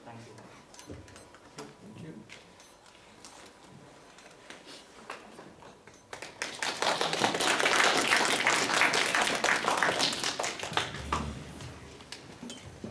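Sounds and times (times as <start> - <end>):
audience applauding: 6.1 - 11.8.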